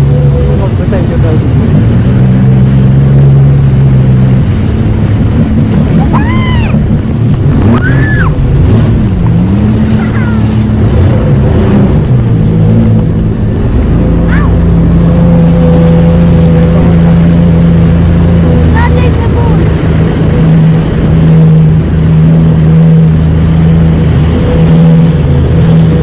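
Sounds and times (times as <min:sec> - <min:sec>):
jet ski engine: 0:00.0 - 0:26.0
wind and water rushing: 0:00.0 - 0:26.0
girl squealing: 0:06.0 - 0:06.8, 0:07.7 - 0:08.4.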